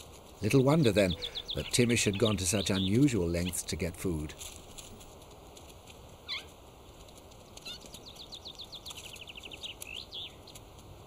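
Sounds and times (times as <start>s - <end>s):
songbird singing trills: 0.4s - 4.3s, 7.5s - 10.6s.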